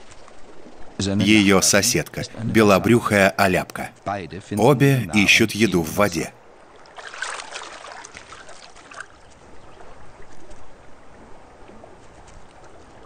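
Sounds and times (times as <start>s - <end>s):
water lapping and splashes: 0.0s - 1.2s, 6.4s - 13.0s
running water trickle: 5.3s - 13.0s.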